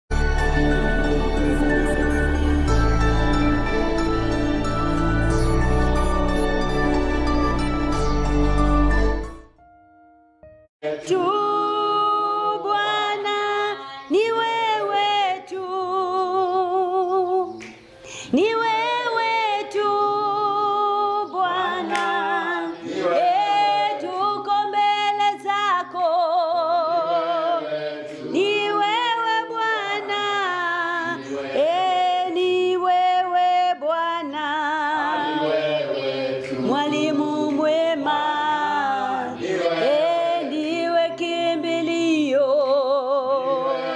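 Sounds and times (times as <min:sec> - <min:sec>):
woman singing worship song: 0:10.8 - 0:43.9.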